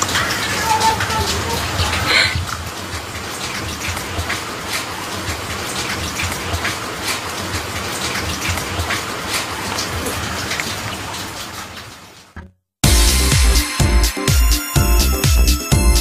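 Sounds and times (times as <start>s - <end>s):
steady rain falling: 0.0s - 12.4s
close raindrop hits: 0.0s - 12.6s.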